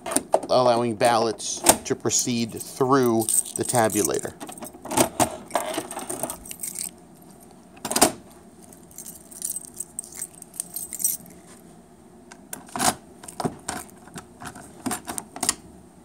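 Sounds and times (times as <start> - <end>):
keys clicking in metal locks: 2.6 - 4.8, 5.5 - 7.4, 8.7 - 11.3
keys jangling: 3.0 - 4.8, 5.5 - 7.5, 8.6 - 11.4.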